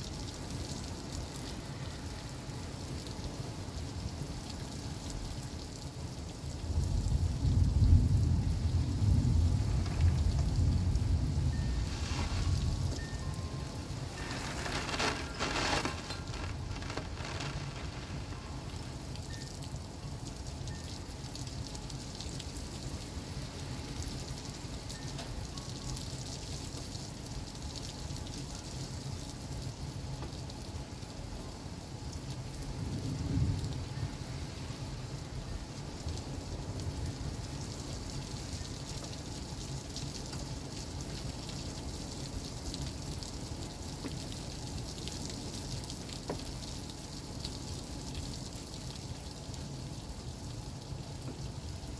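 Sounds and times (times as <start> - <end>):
heavy rain pouring: 0.0 - 51.9
low thunder rumble: 6.7 - 19.4.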